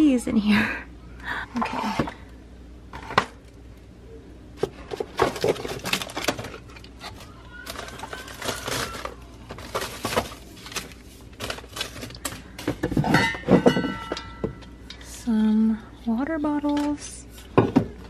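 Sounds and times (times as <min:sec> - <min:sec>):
clutter knocking and clattering: 0:04.6 - 0:15.0, 0:16.7 - 0:18.0.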